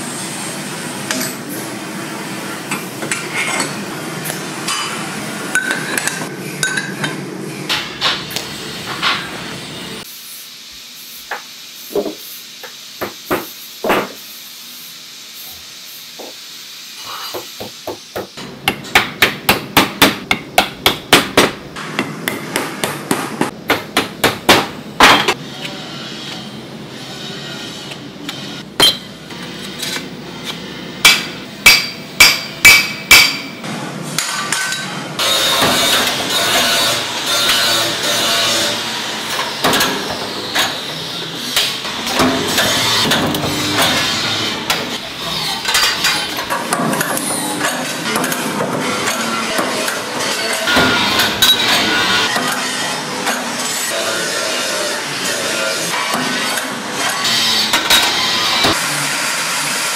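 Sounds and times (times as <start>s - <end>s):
hammer striking steel: 17.6s - 25.4s, 28.8s - 29.1s, 31.0s - 33.6s.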